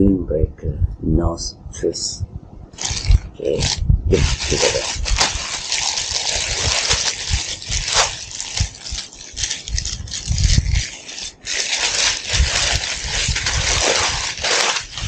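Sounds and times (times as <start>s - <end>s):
plastic bag crinkling: 2.8s - 15.0s.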